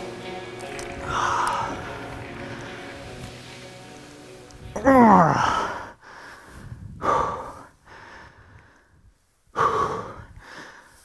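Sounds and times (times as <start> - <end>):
man breathing hard: 1.0 - 3.2, 5.2 - 11.0.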